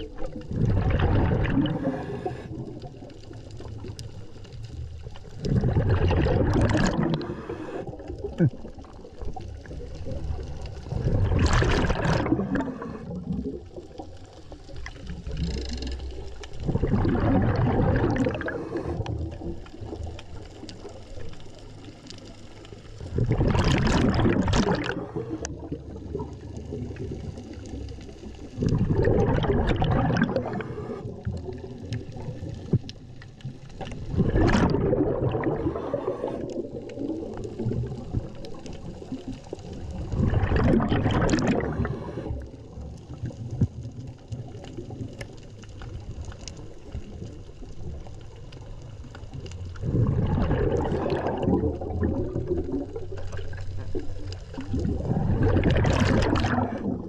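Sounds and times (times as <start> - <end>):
exhaled bubbles underwater: 0.0 - 57.0
scuba regulator breathing: 1.6 - 2.8, 6.9 - 8.6, 12.4 - 13.3, 18.0 - 19.2, 30.3 - 31.2, 35.3 - 36.6, 41.5 - 42.4.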